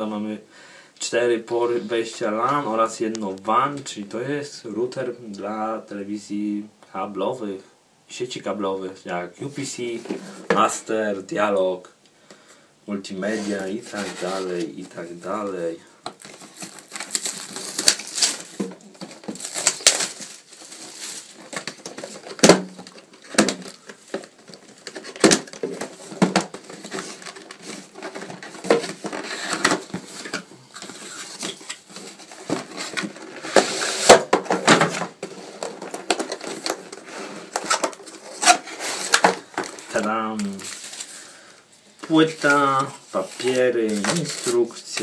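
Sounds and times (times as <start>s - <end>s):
cardboard scraping and rustling: 13.2s - 41.3s.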